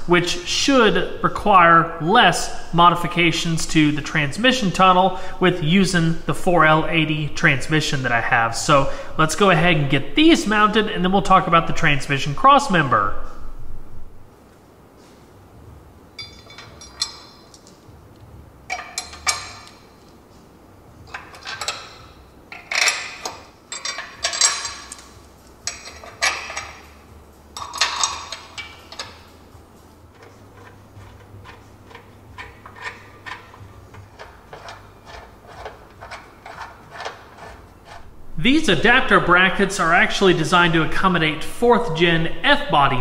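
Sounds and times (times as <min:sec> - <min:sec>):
metal brackets clanking on steel frame: 0:16.2 - 0:17.9, 0:18.7 - 0:20.0, 0:21.0 - 0:38.1.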